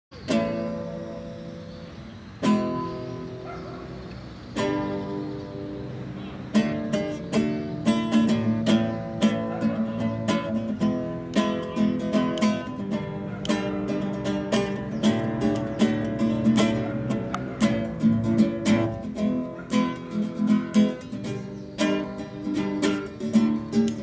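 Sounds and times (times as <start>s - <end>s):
acoustic guitar strumming: 0.2s - 24.0s.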